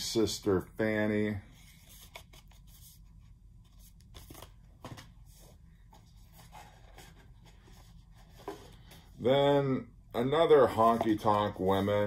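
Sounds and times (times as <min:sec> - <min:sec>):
low steady hum: 0:00.0 - 0:12.0
paper sleeves rustling: 0:01.3 - 0:09.4.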